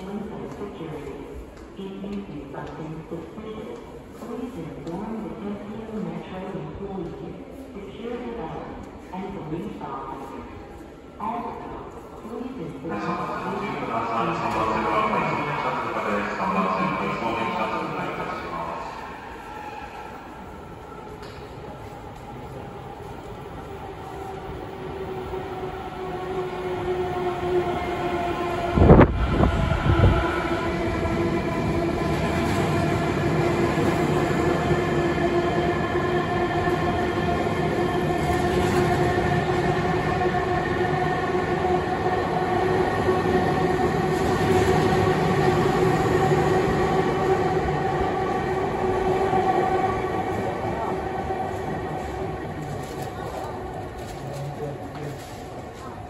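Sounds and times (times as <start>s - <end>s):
electric train rumbling past: 14.3s - 52.8s
train whining drone: 23.3s - 53.2s.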